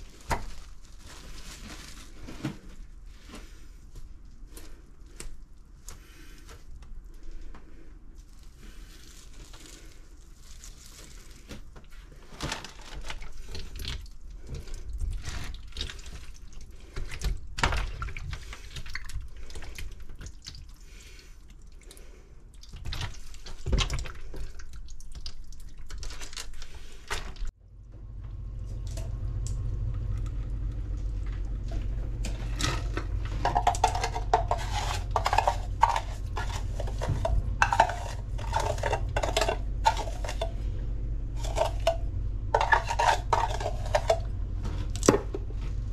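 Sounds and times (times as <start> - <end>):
steady low hum: 27.5 - 45.9
metal bowl clatter: 32.2 - 40.7, 41.4 - 44.4.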